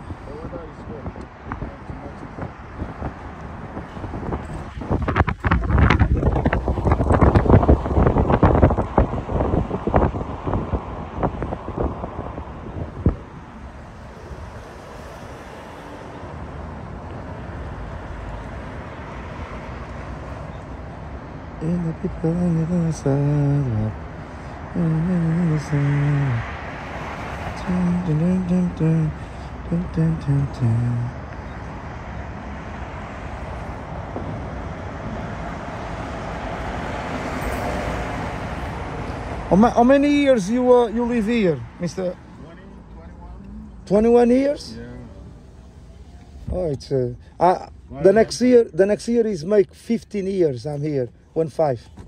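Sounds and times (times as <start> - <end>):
car road and wind noise: 0.0 - 52.0
traffic hiss: 21.6 - 31.7, 36.6 - 52.0.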